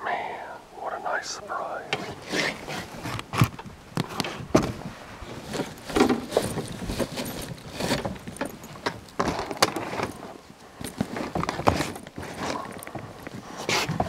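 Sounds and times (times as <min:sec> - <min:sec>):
backpack rustling: 0:02.0 - 0:14.0
zipper pulls jingling: 0:05.4 - 0:13.9.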